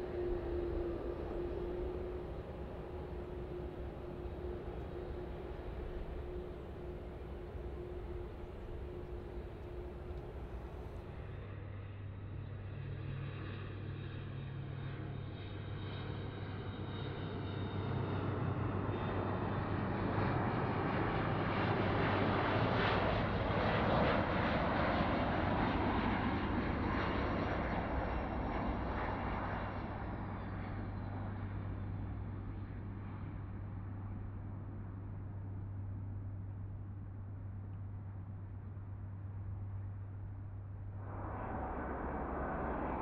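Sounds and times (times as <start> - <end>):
jet engines whining: 0.0 - 11.3, 41.0 - 43.0.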